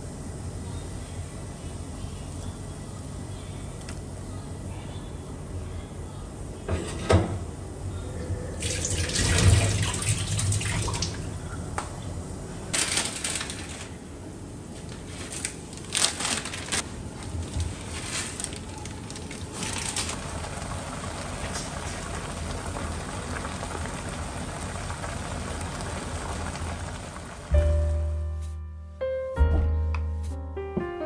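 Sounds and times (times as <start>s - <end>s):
water running in bursts: 8.6s - 11.4s.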